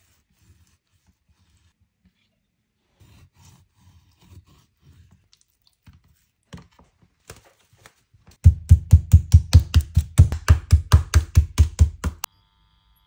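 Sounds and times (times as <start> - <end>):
meat tenderizer pounding: 8.4 - 12.3.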